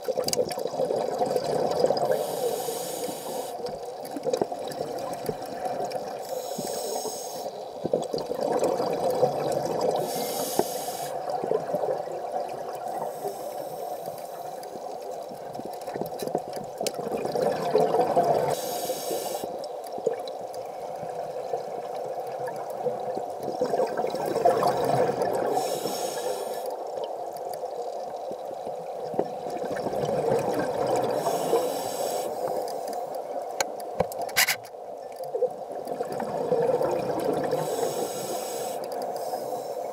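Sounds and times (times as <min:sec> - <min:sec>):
exhaled bubbles rushing: 0:00.0 - 0:02.2, 0:07.9 - 0:10.0, 0:17.0 - 0:18.6, 0:23.0 - 0:25.6, 0:29.4 - 0:31.2, 0:35.9 - 0:37.6.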